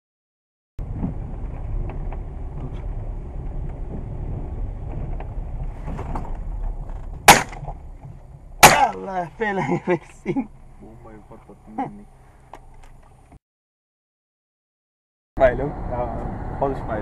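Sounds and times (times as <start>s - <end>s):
wind rumble on microphone: 0.8s - 8.6s, 15.4s - 17.0s
shotgun shot: 7.3s - 7.7s, 8.6s - 9.0s.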